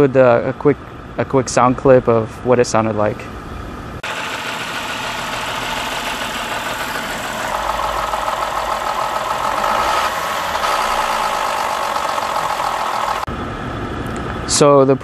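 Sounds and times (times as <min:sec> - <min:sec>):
higher engine sound: 0:00.0 - 0:15.0
car engine idling rough: 0:04.0 - 0:13.3.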